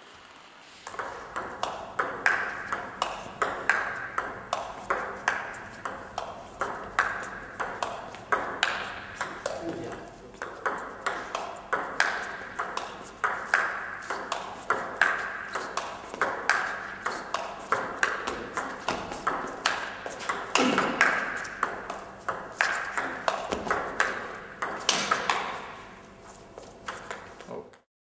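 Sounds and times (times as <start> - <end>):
table tennis ball pings: 0.9 - 25.7, 26.9 - 27.4.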